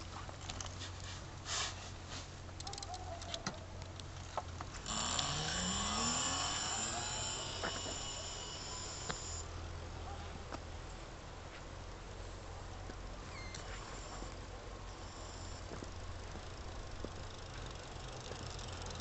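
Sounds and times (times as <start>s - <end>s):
electric motor whine: 4.7s - 9.5s.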